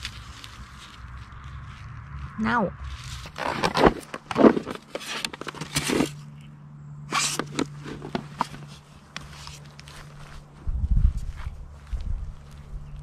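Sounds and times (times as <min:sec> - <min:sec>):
footsteps on pine needles: 0:00.0 - 0:06.2, 0:07.2 - 0:13.0
box scraping on pine needles: 0:00.0 - 0:06.3, 0:07.1 - 0:10.6.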